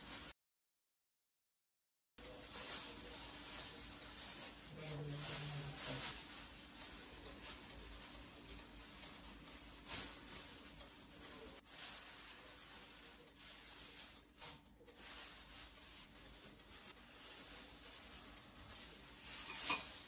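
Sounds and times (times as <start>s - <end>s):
food rubbing and touching: 2.2s - 20.0s.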